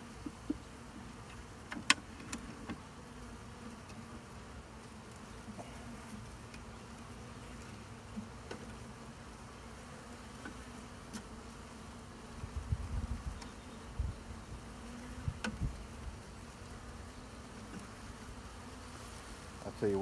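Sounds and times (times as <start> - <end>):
honey bees buzzing: 0.0 - 20.0.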